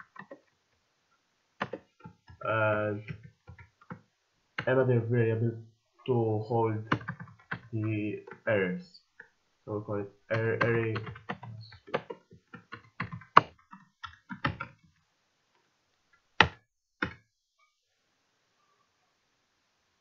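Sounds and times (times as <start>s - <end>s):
typing on keyboard: 1.6s - 2.4s, 6.9s - 8.4s, 10.3s - 14.8s.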